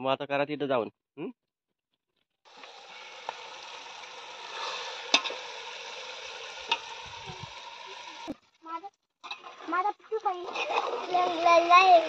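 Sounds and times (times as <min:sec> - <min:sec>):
curry sizzling in a pot: 0:02.5 - 0:12.0.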